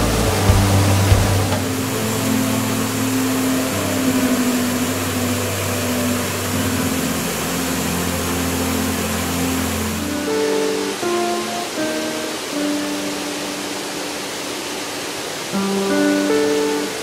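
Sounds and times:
soft instrumental music: 0:00.0 - 0:17.0
waterfall rushing: 0:00.0 - 0:17.0.

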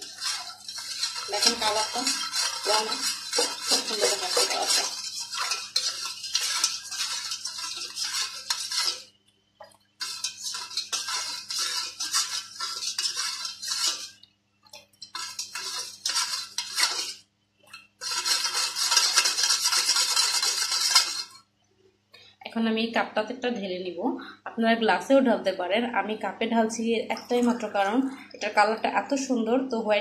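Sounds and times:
spoon scraping metal bowl: 0:00.0 - 0:09.1, 0:10.0 - 0:21.4.

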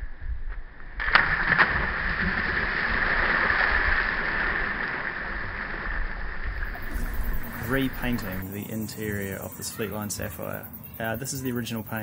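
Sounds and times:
people splashing into water: 0:01.0 - 0:08.4.

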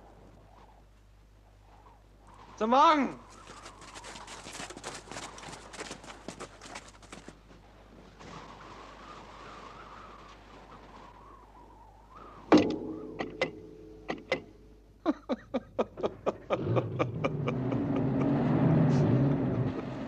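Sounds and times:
knocks: 0:12.5 - 0:14.5
metal clank with ringing: 0:12.5 - 0:14.5.

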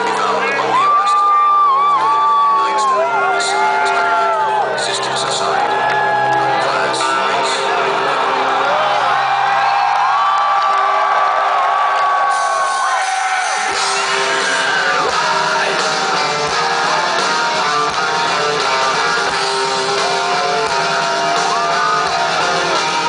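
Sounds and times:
drums: 0:00.0 - 0:23.0
high electric guitar line: 0:12.2 - 0:23.0
bass guitar: 0:13.4 - 0:23.0.

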